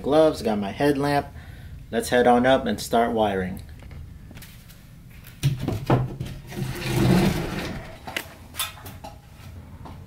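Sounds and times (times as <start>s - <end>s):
hatch panel scraping slide: 6.5s - 8.2s.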